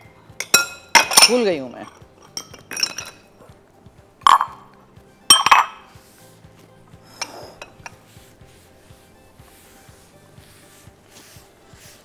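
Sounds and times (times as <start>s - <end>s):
utensil clinking against bowl: 0.4s - 3.3s, 5.3s - 5.9s.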